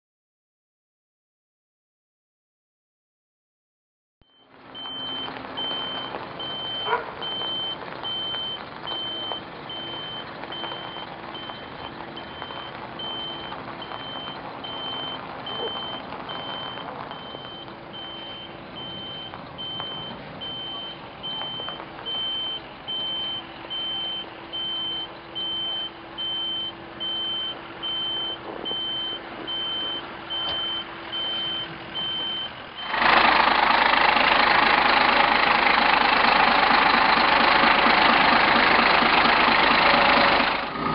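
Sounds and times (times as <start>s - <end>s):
high warning beeps: 4.3s - 33.0s
engines and pumps running: 4.3s - 40.9s
loud steady engine noise: 4.5s - 40.9s.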